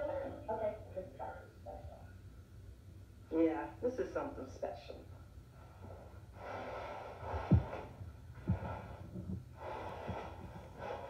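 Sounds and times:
woman breathing heavily and sniffling: 0:05.7 - 0:11.0.

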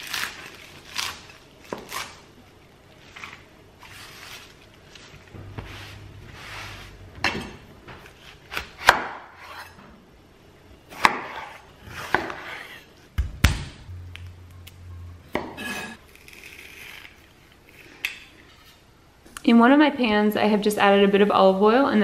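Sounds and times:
knife chopping on wooden board: 0:08.5 - 0:09.7, 0:11.0 - 0:12.5.

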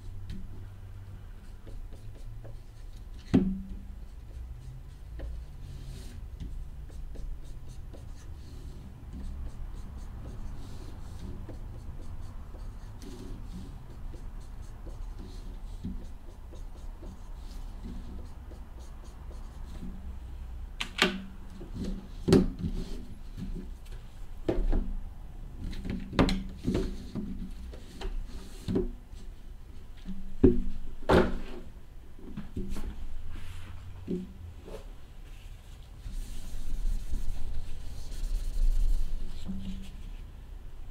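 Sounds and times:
marker scratching on cardboard: 0:01.4 - 0:03.1, 0:04.1 - 0:06.2, 0:06.8 - 0:19.8, 0:36.1 - 0:40.0.

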